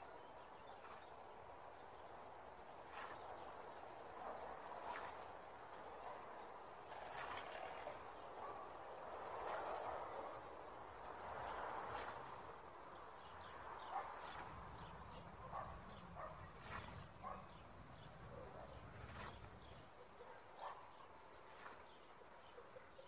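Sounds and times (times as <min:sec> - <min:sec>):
distant dog barking: 0:04.2 - 0:04.6, 0:08.4 - 0:08.8, 0:13.8 - 0:14.3, 0:15.1 - 0:17.6, 0:20.0 - 0:21.1
birds calling: 0:09.4 - 0:23.0.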